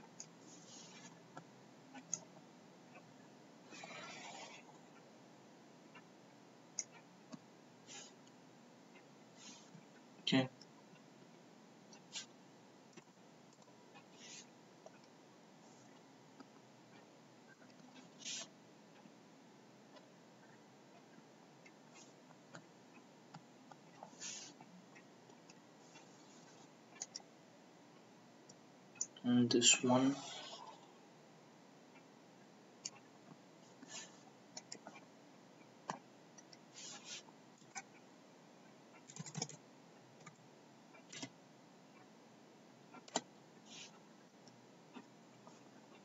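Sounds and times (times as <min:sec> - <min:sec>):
keyboard keystrokes: 0:39.1 - 0:39.6.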